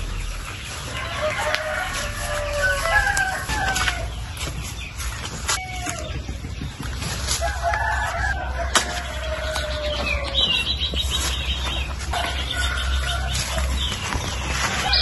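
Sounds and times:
rooster crowing: 0.9s - 4.2s, 7.4s - 10.6s.

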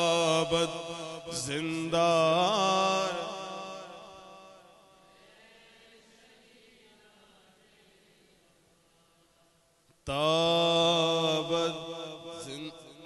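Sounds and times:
man chanting through microphone: 0.0s - 4.8s, 10.0s - 13.0s.

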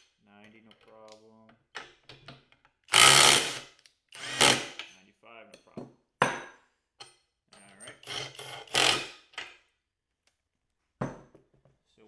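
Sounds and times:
impact driver hammering: 2.9s - 4.9s, 8.0s - 9.3s.

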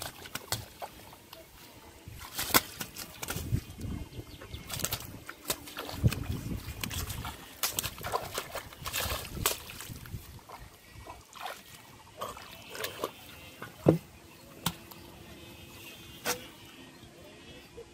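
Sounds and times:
feet wading through water: 0.0s - 13.6s
fish thrashing in shallow water: 0.0s - 15.1s.

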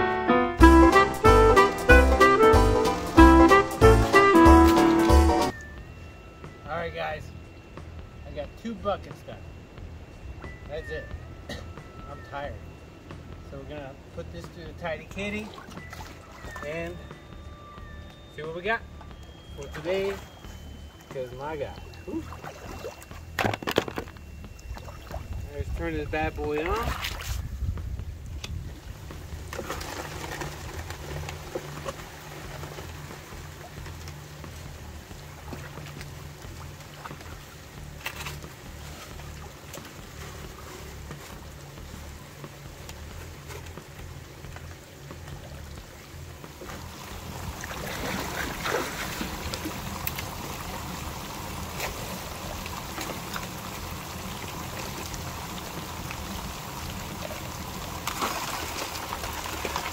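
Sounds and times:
water pump humming: 6.9s - 27.2s, 29.1s - 59.9s
water pouring and trickling: 14.6s - 59.9s.

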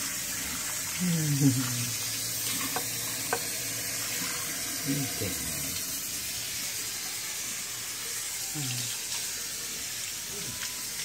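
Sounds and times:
water splashing into sink: 0.0s - 6.8s
sink sprayer water spraying: 0.0s - 11.0s.

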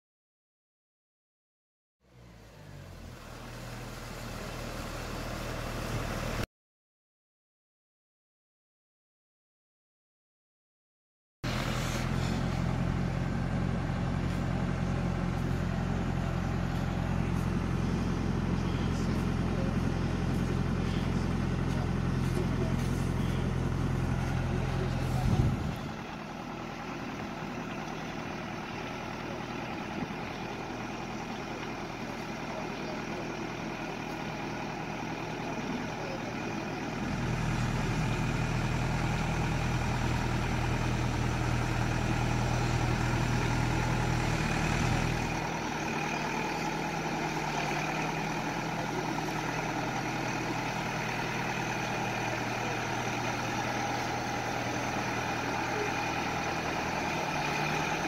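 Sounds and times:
diesel engine droning: 2.0s - 6.5s, 11.4s - 58.0s.

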